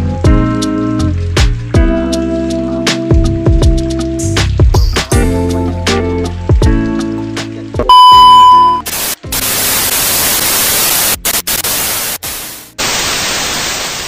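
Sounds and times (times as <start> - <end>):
test-tone beep: 7.8 - 8.9
tv static hiss: 8.1 - 14.0.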